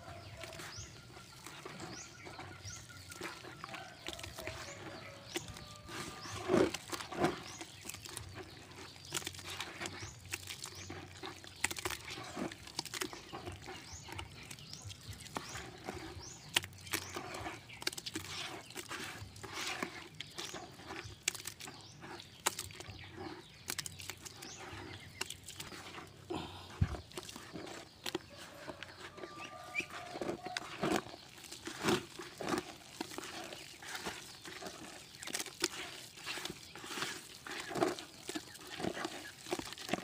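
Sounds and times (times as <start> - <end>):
wet mash squelching by hand: 0.0 - 40.0.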